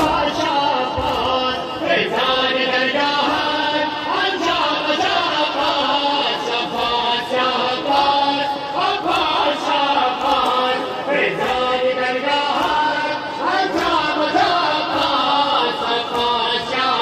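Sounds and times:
crowd of men chanting: 0.0 - 17.0
hands slapping chests: 9.0 - 11.8, 13.6 - 17.0.

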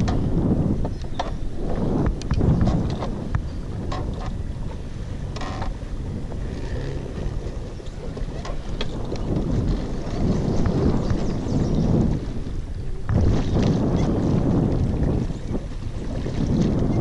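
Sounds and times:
wind rumbling on microphone: 0.0 - 17.0
light clicks and knocks from gear: 6.4 - 9.5.

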